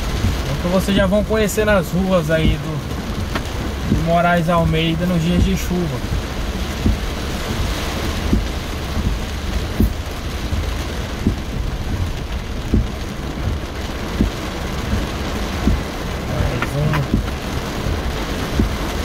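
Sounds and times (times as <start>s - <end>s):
heavy rain on car roof: 0.0s - 19.0s
short low thump: 5.4s - 7.6s, 8.2s - 15.0s, 15.6s - 16.0s, 16.6s - 17.3s.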